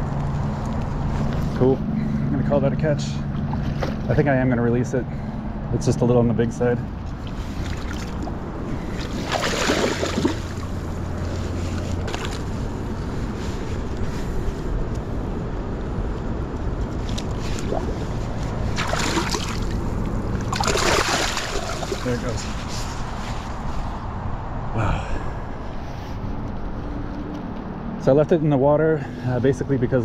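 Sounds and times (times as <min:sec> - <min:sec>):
steady low river rush: 0:00.0 - 0:30.0
water splashing: 0:07.2 - 0:12.6, 0:16.9 - 0:22.6.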